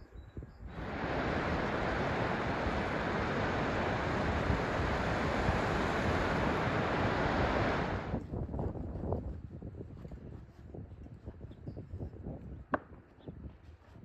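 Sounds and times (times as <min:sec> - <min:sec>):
waves breaking on a beach: 0:00.7 - 0:08.2.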